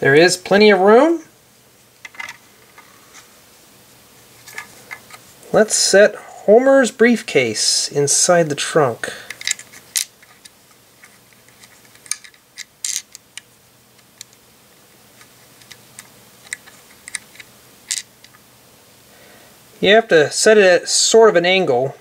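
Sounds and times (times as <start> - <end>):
small plastic parts clicking: 9.3 - 14.4, 15.2 - 18.4.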